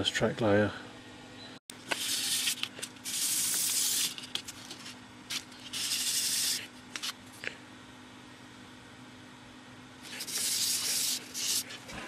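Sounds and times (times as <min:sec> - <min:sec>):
board rasping on sandpaper: 0:10.1 - 0:11.8.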